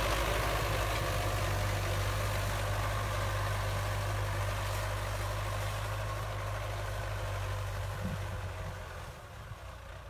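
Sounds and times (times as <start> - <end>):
tractor diesel engine under load: 0.0 - 10.0.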